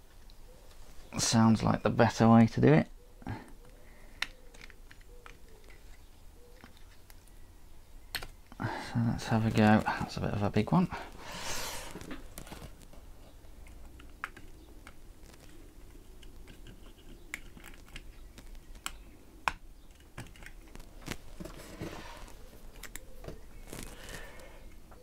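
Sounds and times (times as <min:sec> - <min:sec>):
small plastic clicks and taps: 0:03.5 - 0:07.4, 0:08.1 - 0:08.6, 0:13.6 - 0:21.2
soft rustles: 0:11.1 - 0:13.8, 0:20.3 - 0:24.4.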